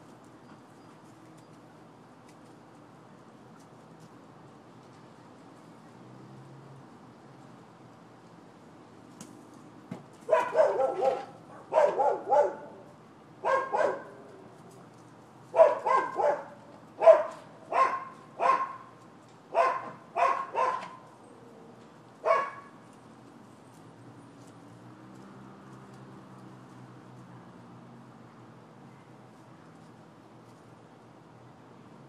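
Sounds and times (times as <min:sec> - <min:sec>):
dog barking: 0:10.3 - 0:14.2, 0:15.5 - 0:18.9, 0:19.5 - 0:21.0, 0:22.2 - 0:22.8.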